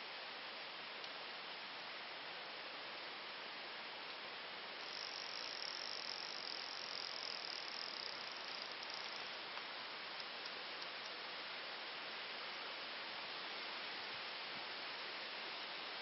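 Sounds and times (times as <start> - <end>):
steady hiss: 0.0 - 16.0
high insect trill: 4.8 - 11.2.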